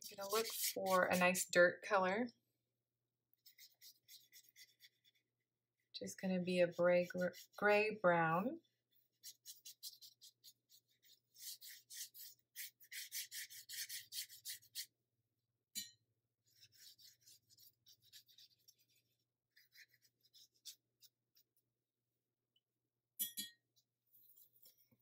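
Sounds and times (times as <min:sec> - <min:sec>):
paintbrush scratching on paper: 0:00.0 - 0:01.4, 0:03.4 - 0:05.3, 0:06.2 - 0:07.9, 0:08.6 - 0:14.9, 0:16.4 - 0:21.6.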